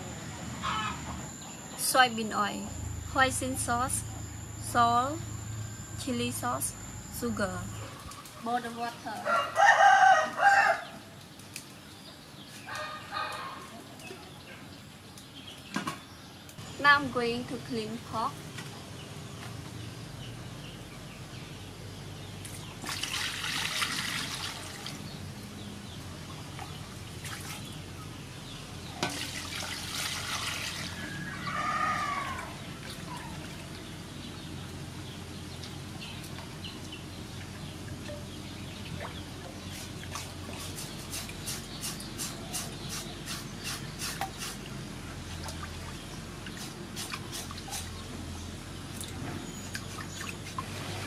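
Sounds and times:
water splashing in metal bowl: 22.8 - 25.0, 29.0 - 31.2.

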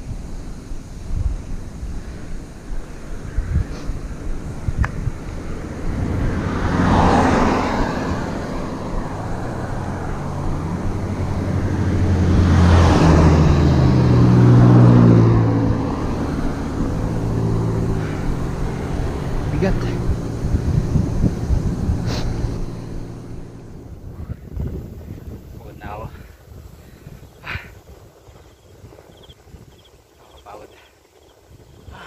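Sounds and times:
low engine hum: 0.0 - 30.6
vehicles passing by: 0.0 - 32.0.

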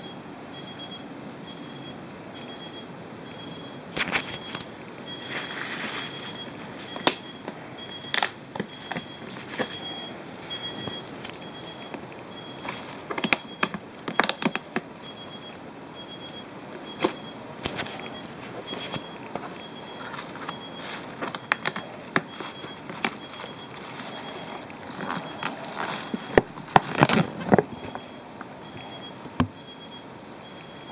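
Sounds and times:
faint high-pitched electronic beeping: 0.0 - 30.9
plastic lid clicking and crackling: 12.7 - 14.8, 18.7 - 28.0.

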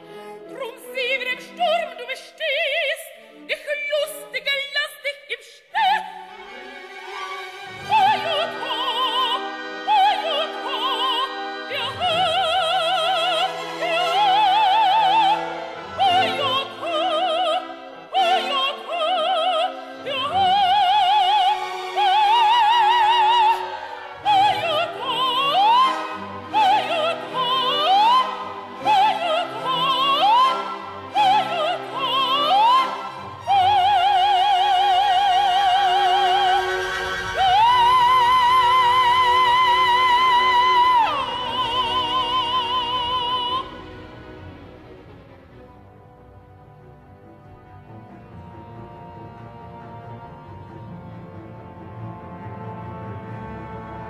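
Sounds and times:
orchestra: 0.0 - 54.0
sopranos singing opera: 7.1 - 44.1.

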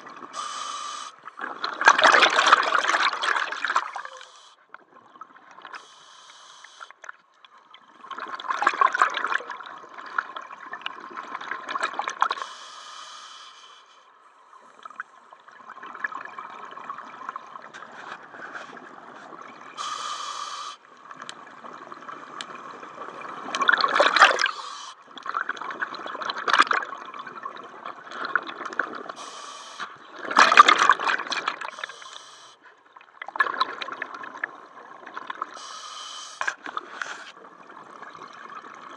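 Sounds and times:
exhaled bubbles gurgling: 0.0 - 6.0, 7.0 - 12.5, 14.8 - 38.9
regulator breathing underwater: 0.3 - 1.3, 3.9 - 4.6, 5.8 - 7.0, 12.4 - 14.1, 19.8 - 20.9, 24.2 - 25.0, 29.2 - 30.0, 31.7 - 32.7, 35.6 - 37.4
regulator hiss: 0.4 - 1.2, 5.8 - 6.9, 12.4 - 13.9, 19.8 - 20.8, 24.5 - 25.0, 29.2 - 29.9, 31.8 - 32.6, 35.6 - 36.5.

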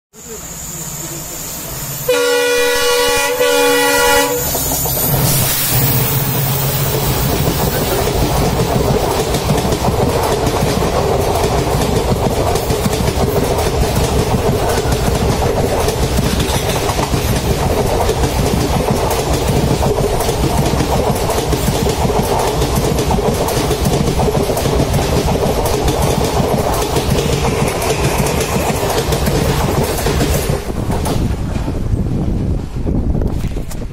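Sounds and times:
passing train rumble and wheel clatter: 0.1 - 33.9
locomotive air horn blast: 2.1 - 4.7.

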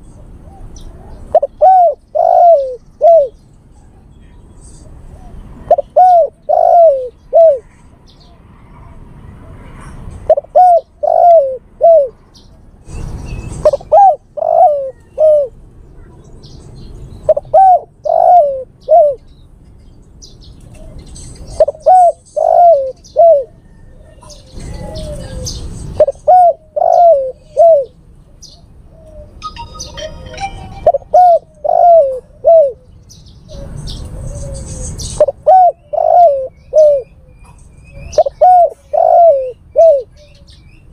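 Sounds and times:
dove cooing: 0.4 - 3.4, 5.1 - 7.8, 10.2 - 12.2, 13.6 - 15.6, 17.2 - 19.3, 20.7 - 40.5.

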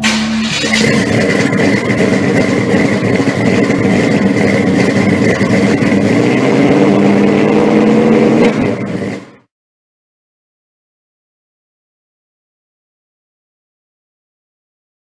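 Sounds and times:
car engine running: 0.0 - 9.5.

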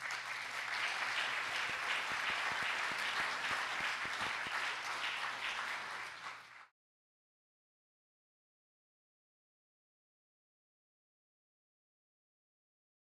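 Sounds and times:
audience applauding: 0.0 - 6.7.

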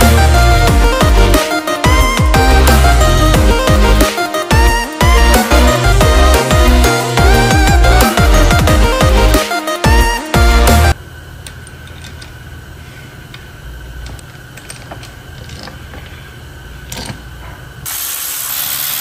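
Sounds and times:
steady low hum: 10.4 - 17.9
metal parts clicking and tapping: 11.4 - 12.4, 14.0 - 16.2, 16.8 - 17.3
loud hiss: 17.9 - 19.0.

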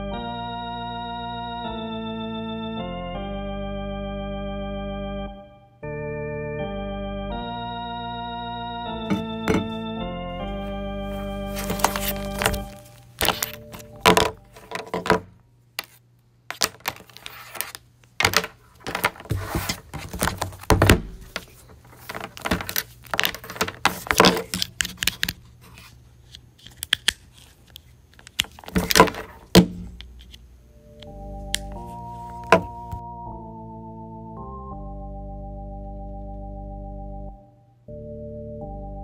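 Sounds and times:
cables and plugs rattling and clicking: 11.5 - 30.4.

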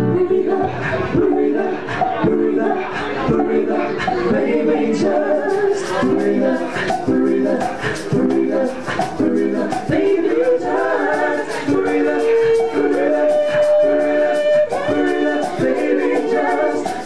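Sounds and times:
vocal ensemble singing in harmony: 0.0 - 17.0
light percussion strokes: 1.9 - 17.0
voice holding long high note: 12.0 - 16.8.

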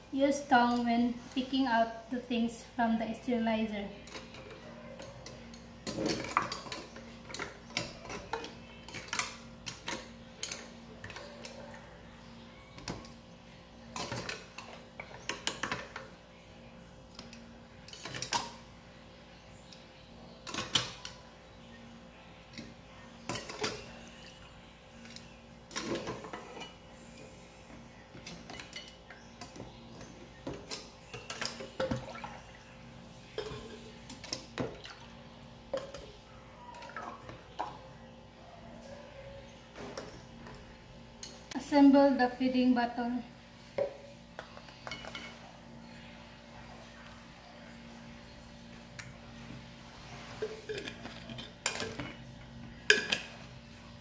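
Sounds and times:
metal tongs clinking on a pot: 23.3 - 23.9.

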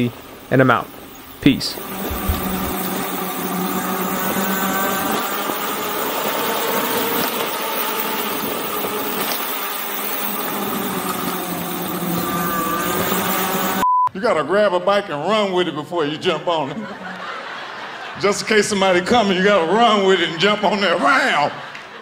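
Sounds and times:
tyre and wind rush: 0.4 - 13.8
electric motor whining: 1.7 - 13.8.

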